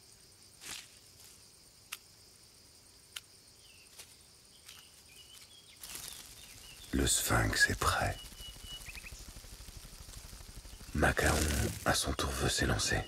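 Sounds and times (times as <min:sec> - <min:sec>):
insects chirring: 0:00.0 - 0:13.0
sharp ticks: 0:05.8 - 0:13.0.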